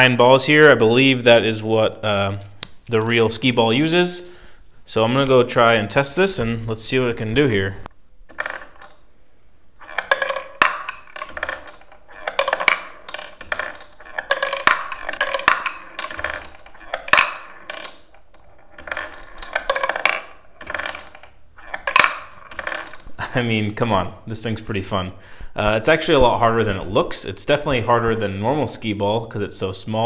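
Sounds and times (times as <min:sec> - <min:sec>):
balls clicking into wooden rings: 0:01.4 - 0:03.5, 0:05.2 - 0:05.6, 0:07.8 - 0:09.1, 0:09.7 - 0:23.2
ball bearings rolling on wood: 0:07.2 - 0:09.1, 0:09.7 - 0:23.4.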